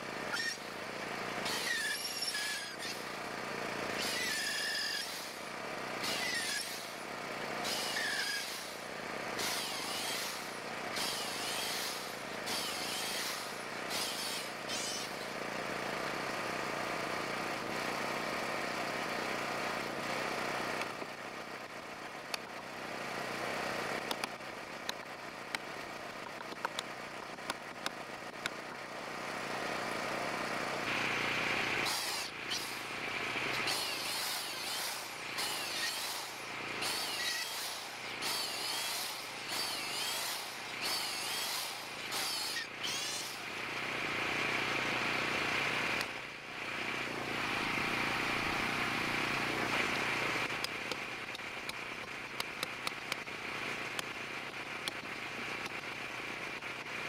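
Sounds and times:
electric drill boring into wood: 0.3s - 0.8s, 1.4s - 3.2s, 3.9s - 5.4s, 6.0s - 7.0s, 7.6s - 15.4s, 30.9s - 46.2s
sharp clicks: 24.0s - 28.6s, 50.6s - 53.3s, 54.8s - 55.8s.

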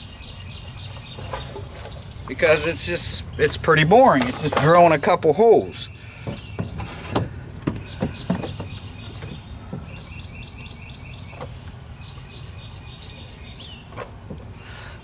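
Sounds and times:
bird chirping: 0.0s - 14.9s
light knocks and clunks: 4.0s - 5.0s, 6.2s - 11.8s, 13.9s - 14.6s.

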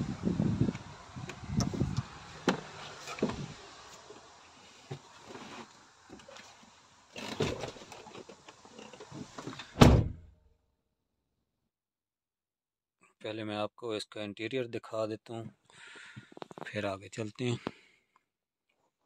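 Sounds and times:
truck door shutting: 9.1s - 10.3s.

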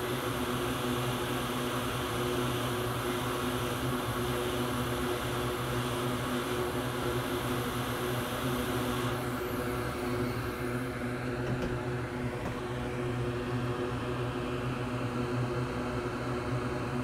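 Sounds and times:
hot air blower rushing: 1.6s - 13.3s.

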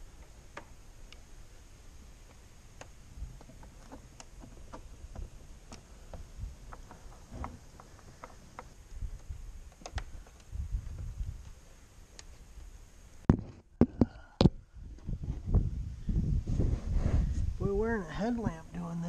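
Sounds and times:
dull low thumps: 13.8s - 17.6s.

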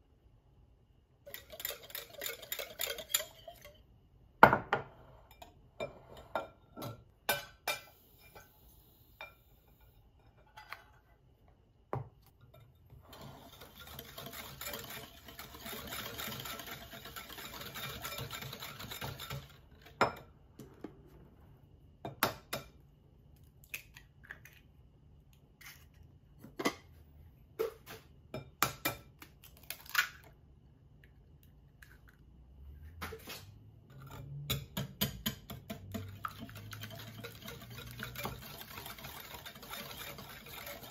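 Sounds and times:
whisk clinking against glass bowl: 1.3s - 3.8s, 13.6s - 20.2s, 34.5s - 40.9s.

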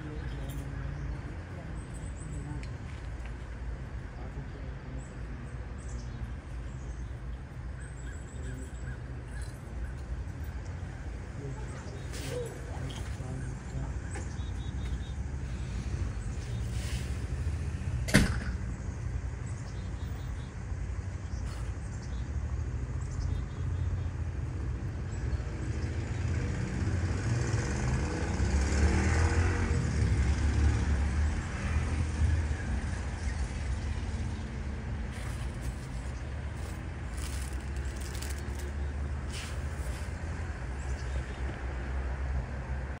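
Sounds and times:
low outdoor rumble: 29.5s - 43.0s.

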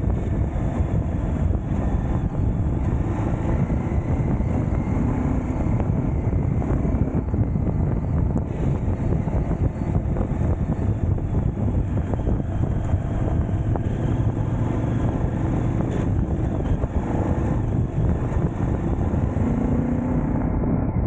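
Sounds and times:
motorcycle engine running: 0.0s - 21.0s
wind rumbling on microphone: 0.0s - 21.0s.

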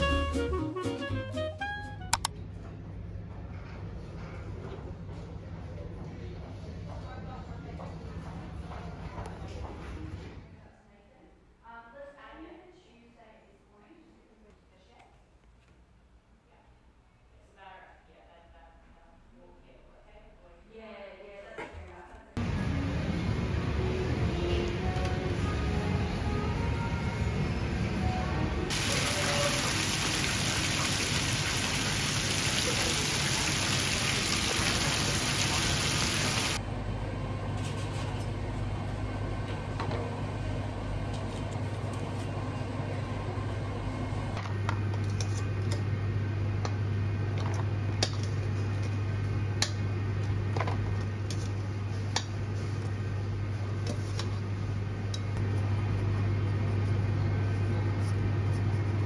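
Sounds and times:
low machine hum: 22.4s - 59.0s
chicken sizzling in deep fryer oil: 28.7s - 36.6s.

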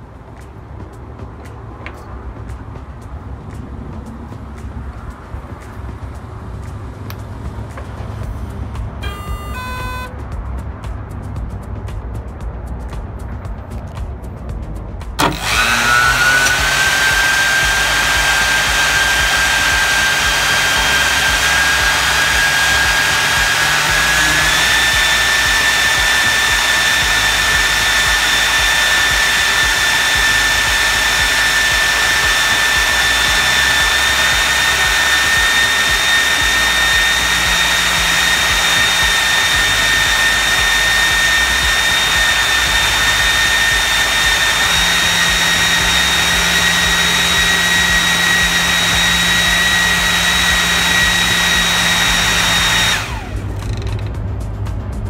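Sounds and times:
electric fan whistling rush: 9.0s - 10.3s, 15.2s - 53.8s.

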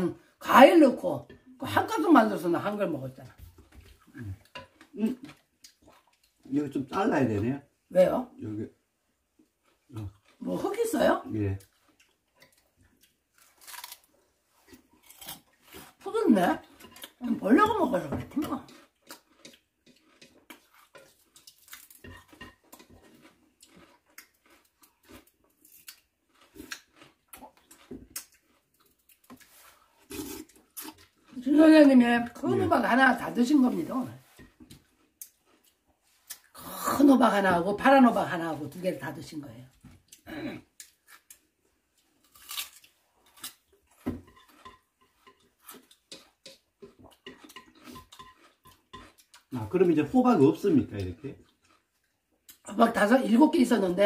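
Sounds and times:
slurping and chewing: 3.3s - 6.5s, 9.2s - 10.7s, 11.6s - 16.0s, 18.2s - 31.5s, 33.3s - 37.1s, 39.7s - 52.7s
spoon scraping metal pot: 44.2s - 49.1s.

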